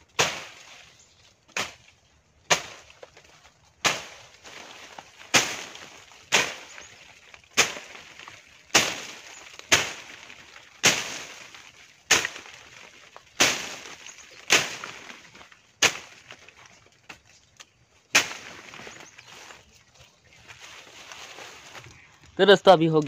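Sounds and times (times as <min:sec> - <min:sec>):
leaves rustling: 0:00.0 - 0:23.0
machete slashing brush: 0:03.8 - 0:06.8, 0:07.6 - 0:12.6, 0:13.4 - 0:15.2, 0:18.1 - 0:18.9.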